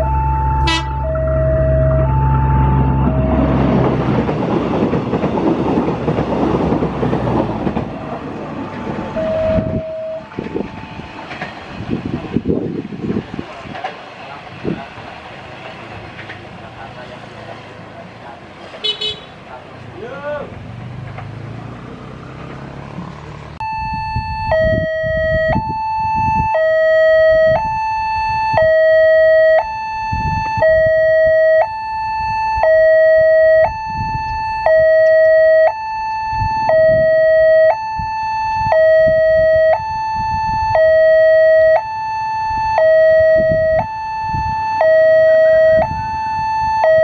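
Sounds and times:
level crossing alarm two-tone signal: 0:00.0 - 0:03.8, 0:09.0 - 0:11.1, 0:23.6 - 0:47.0.

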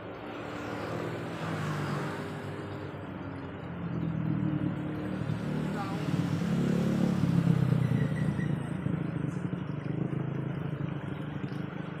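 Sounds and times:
vehicle engine running: 0:02.5 - 0:12.0.

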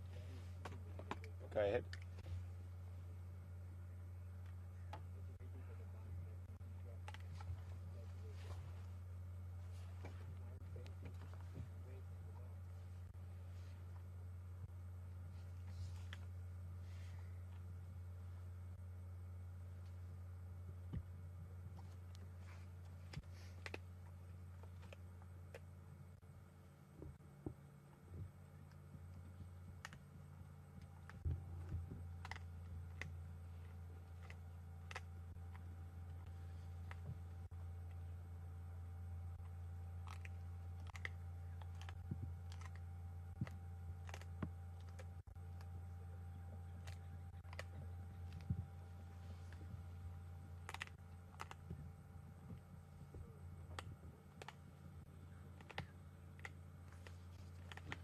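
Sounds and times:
steady low hum: 0:00.0 - 0:58.0
leopard crunching bone: 0:04.2 - 0:58.0
bones cracking: 0:34.0 - 0:35.7, 0:39.4 - 0:45.7, 0:46.8 - 0:48.5, 0:50.6 - 0:51.7, 0:55.5 - 0:58.0.

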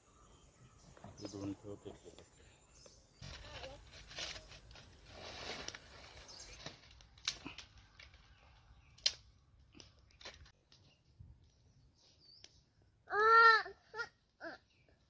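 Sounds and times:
dry leaves rustling and crackling: 0:03.2 - 0:08.8
dry twigs cracking: 0:03.2 - 0:12.6.

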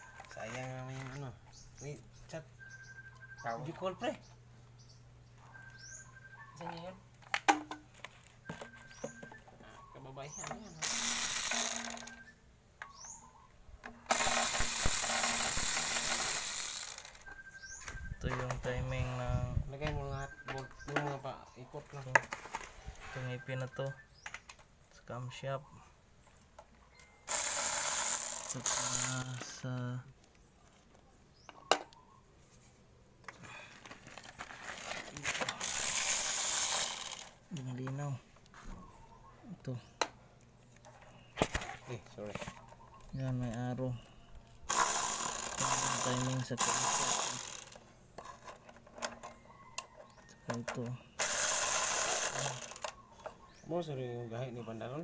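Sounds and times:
crinkling rustling: 0:33.6 - 0:35.6.

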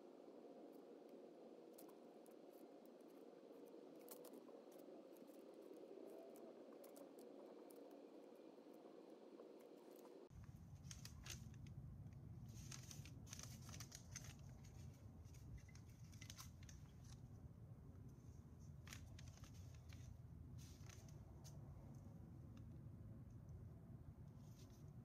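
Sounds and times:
steady low hum: 0:00.0 - 0:25.0
paper rustling and crinkling: 0:10.7 - 0:11.7, 0:12.4 - 0:17.2, 0:18.7 - 0:21.6.

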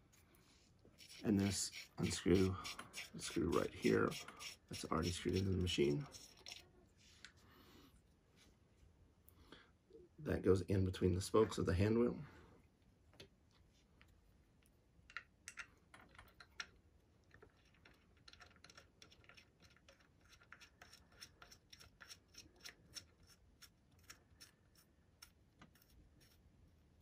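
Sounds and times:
small metal clicks and taps: 0:15.0 - 0:16.8.

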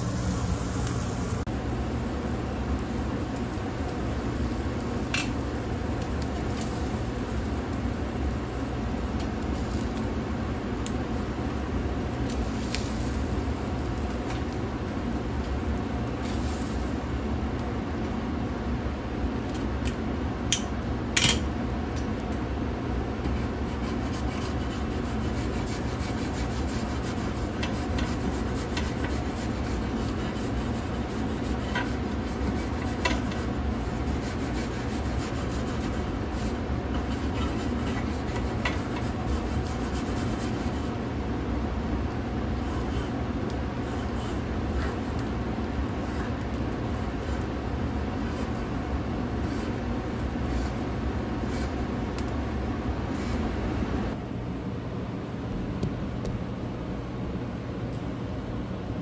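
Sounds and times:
meat sizzling on a grill: 0:00.0 - 0:18.6, 0:23.4 - 0:52.3
grill brush scraping grate: 0:23.2 - 0:41.2, 0:42.5 - 0:52.3.

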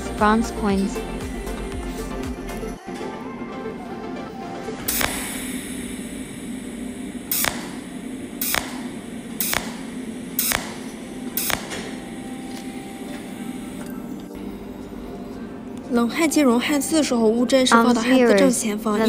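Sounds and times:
steady low hum: 0:00.0 - 0:19.0
welding arc snaps: 0:04.8 - 0:14.4.

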